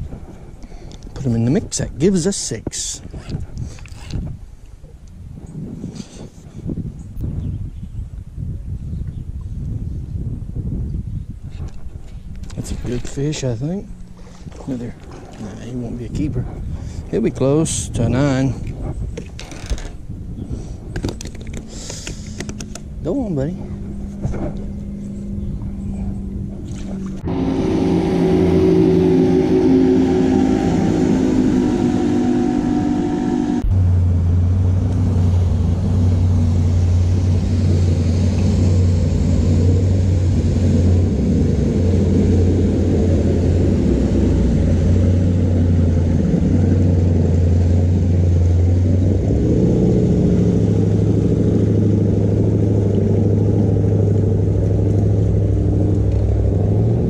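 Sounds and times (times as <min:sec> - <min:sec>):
motorboat engine drone: 0:12.4 - 0:18.3, 0:19.3 - 0:57.0.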